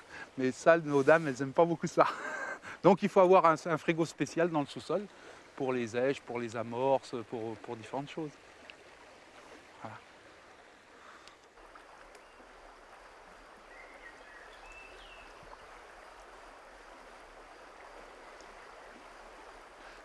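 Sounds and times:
river water flowing: 0.0 - 20.0.

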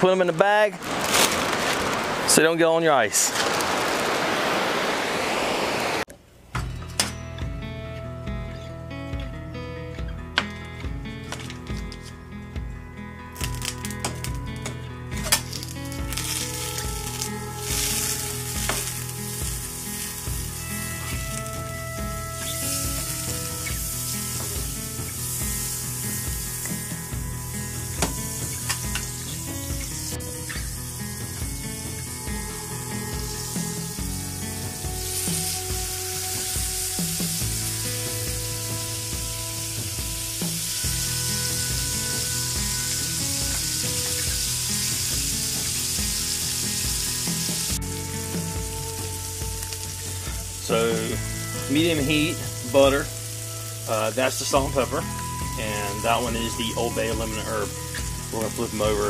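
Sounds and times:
background music: 6.5 - 59.0
butter sizzling in a frying pan: 15.5 - 59.0.

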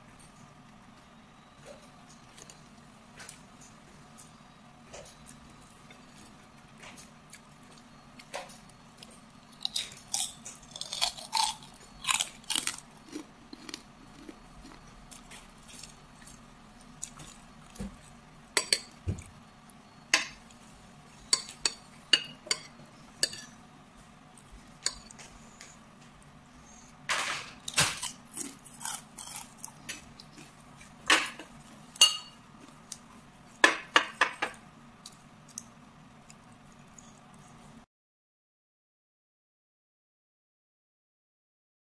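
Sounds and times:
faint steady hum: 0.0 - 37.9
chewing and crunching food: 1.5 - 33.6, 34.3 - 37.8
metal spoon clinking on plate: 32.0 - 32.4.

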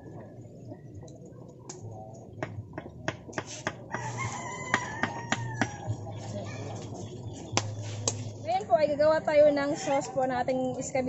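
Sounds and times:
rooster crowing: 3.9 - 6.6.

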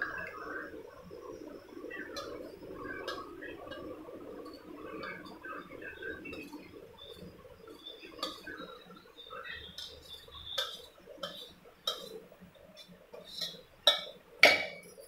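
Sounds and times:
metal spoon scraping saucepan: 9.6 - 15.0.

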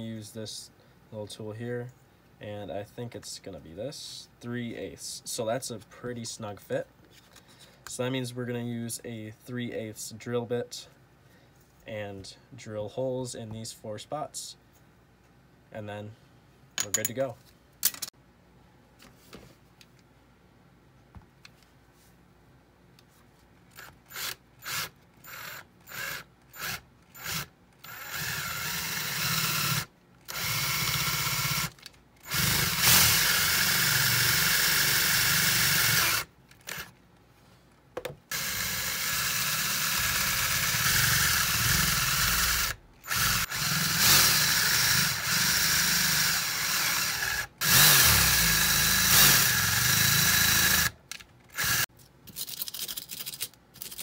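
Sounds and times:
cordless drill boring into plywood: 23.8 - 36.9, 38.3 - 51.0, 51.6 - 51.8.

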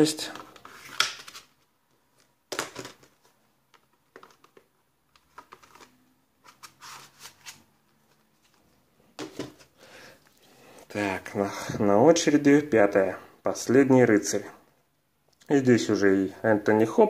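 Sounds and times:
plastic cases rustling and clicking: 0.2 - 8.6.

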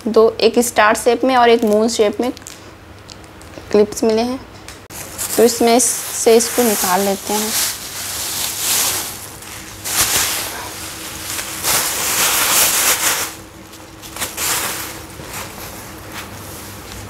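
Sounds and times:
plastic bag crinkling: 1.6 - 3.6, 4.9 - 16.9.

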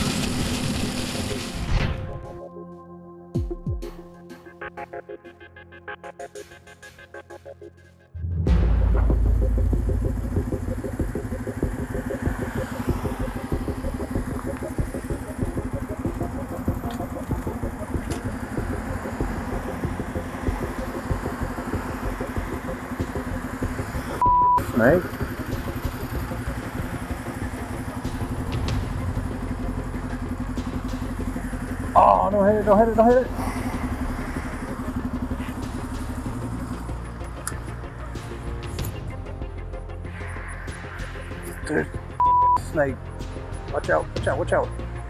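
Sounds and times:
motorcycle engine idling: 8.6 - 39.1.

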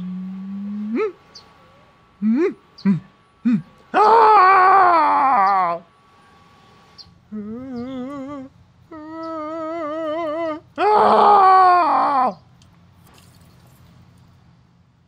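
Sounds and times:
quavering frightened whimpers: 0.0 - 1.2, 2.2 - 5.9, 7.3 - 12.4.

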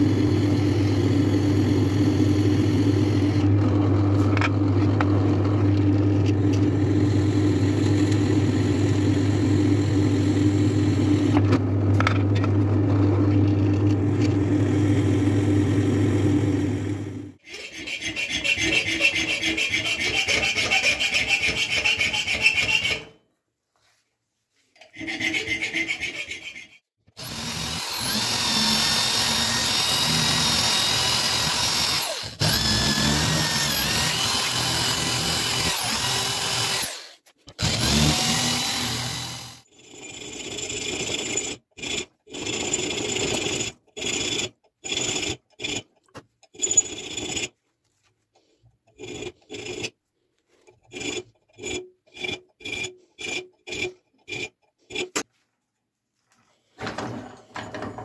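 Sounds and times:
file rasping on steel: 17.4 - 23.2, 24.8 - 47.6, 48.4 - 55.3
power tool whining on steel: 27.2 - 40.1.

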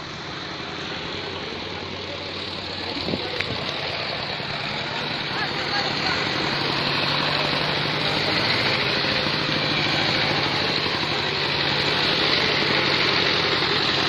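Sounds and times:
engine droning: 0.0 - 14.0.

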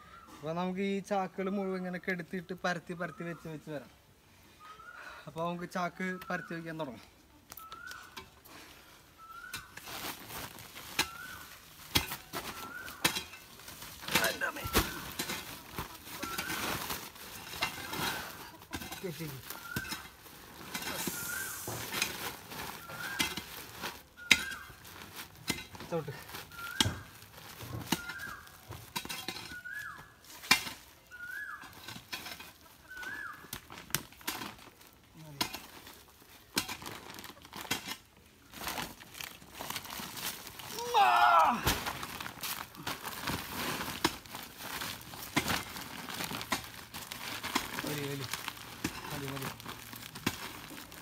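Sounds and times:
bird whistling: 7.6 - 8.2, 9.2 - 9.8, 11.0 - 11.5, 12.4 - 13.0, 19.5 - 20.1, 20.9 - 21.8, 22.8 - 23.5, 24.2 - 24.8, 26.5 - 27.1, 29.4 - 30.1, 31.1 - 31.7, 32.9 - 33.5
soil shovelled into sacks: 7.6 - 51.0.

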